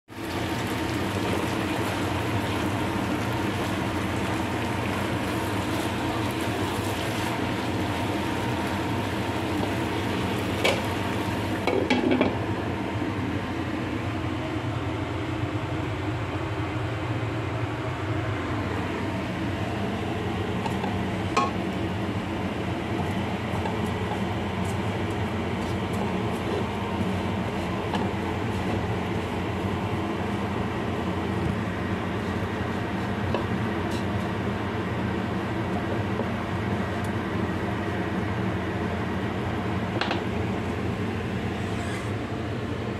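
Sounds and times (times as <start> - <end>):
food sizzling in a frying pan: 0.1 - 12.2
steady hum: 0.2 - 42.9
utensil knocking on pan: 20.6 - 21.6.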